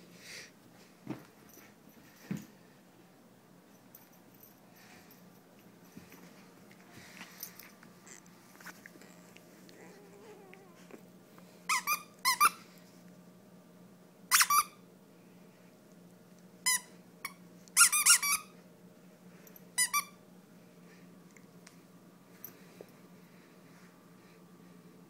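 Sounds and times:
dog toy squeaking: 11.7 - 12.6, 14.3 - 14.8, 17.8 - 18.5.

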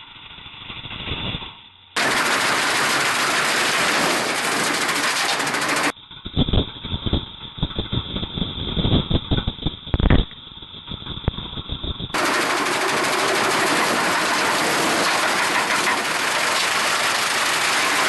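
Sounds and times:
knocks and thuds of metal tearing: 2.0 - 5.9, 12.2 - 18.0
snowblower and tractor running: 2.0 - 6.0, 12.1 - 18.0.

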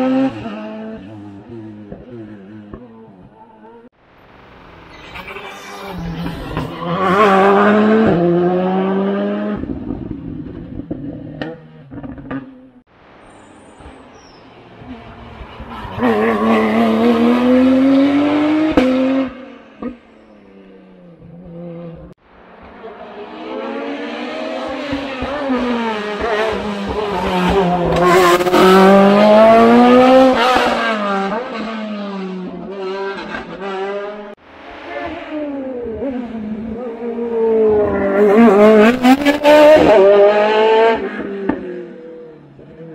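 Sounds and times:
race car engines accelerating: 0.0 - 42.9.

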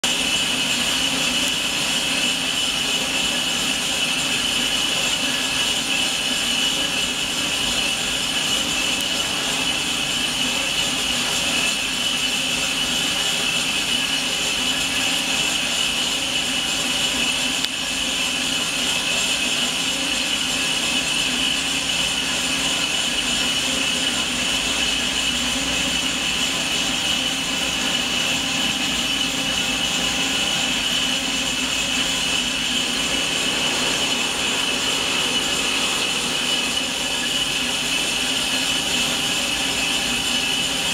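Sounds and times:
boring machine whine: 0.1 - 40.9
low hum: 32.5 - 38.6.

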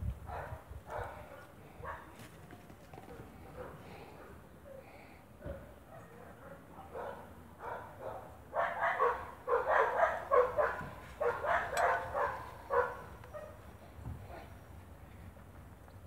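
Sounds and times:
dog barking: 0.3 - 2.1, 3.5 - 4.4, 5.6 - 13.6.

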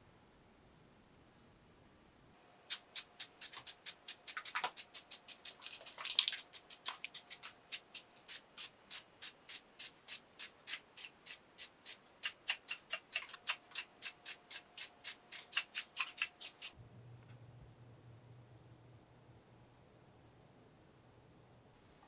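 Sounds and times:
aerosol can spraying bursts: 2.7 - 16.8
faint low hum: 16.8 - 22.0.

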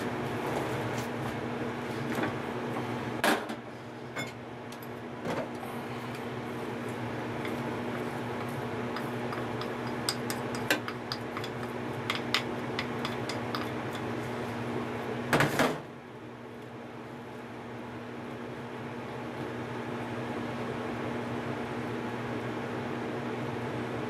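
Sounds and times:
steady hiss and hum: 0.0 - 19.7
chopsticks tapping bowl and pot: 8.4 - 14.1.

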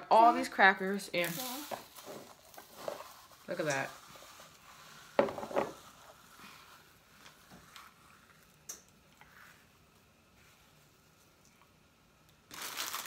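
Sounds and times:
crackers being crushed: 0.9 - 3.4, 12.3 - 13.0.

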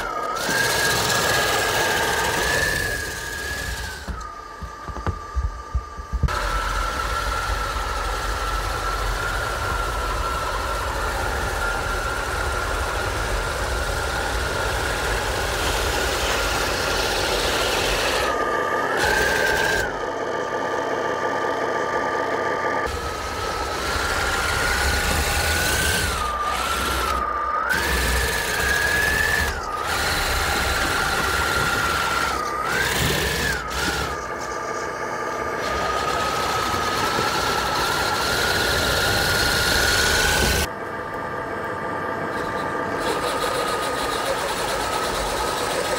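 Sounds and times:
electric motors whining: 0.0 - 45.9.

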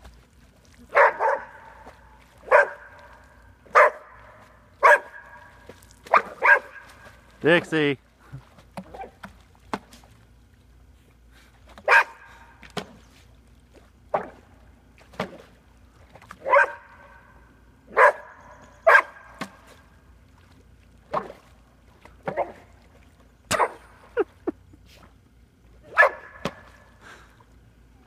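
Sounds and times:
dog barking: 0.9 - 1.6, 2.5 - 2.9, 3.7 - 4.1, 4.8 - 5.3, 6.1 - 6.8, 11.8 - 12.2, 16.4 - 16.9, 17.9 - 19.2, 25.9 - 26.4.

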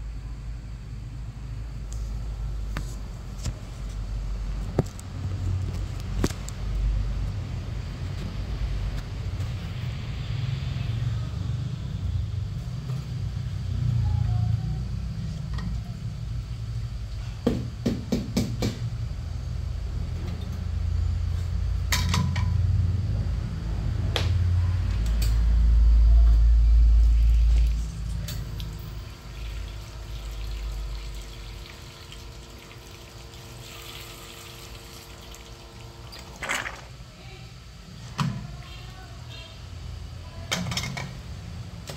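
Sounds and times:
espresso machine pump humming: 25.4 - 37.0.

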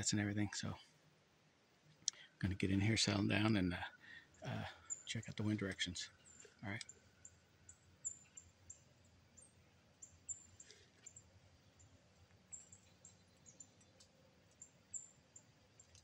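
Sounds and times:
soft ticks: 12.3 - 14.7, 15.8 - 16.0.

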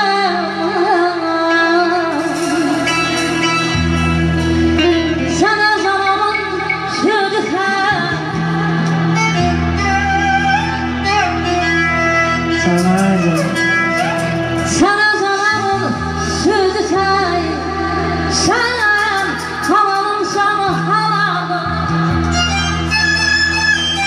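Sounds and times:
woman singing into a microphone: 0.0 - 9.9, 14.6 - 22.8
amplified backing music with drone: 0.0 - 24.0.

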